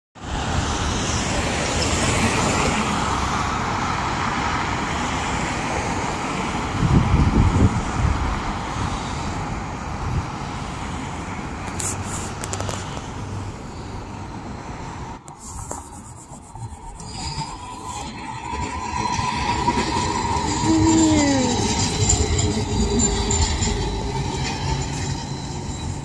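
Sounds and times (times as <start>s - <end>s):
low rumble of passing vehicles: 0.2s - 26.0s
passing cars and tyre noise: 0.2s - 26.0s.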